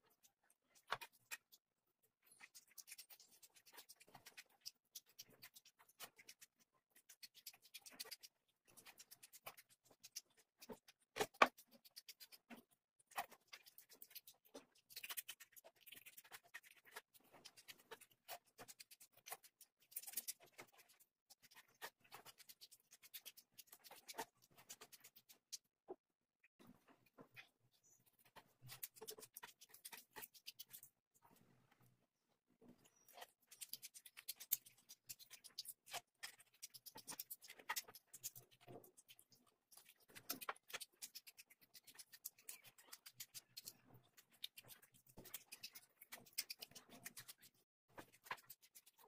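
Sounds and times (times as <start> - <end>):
fingers mixing rice and curry: 0.0 - 25.8, 26.6 - 49.0
chewing and mouth sounds: 32.8 - 49.0.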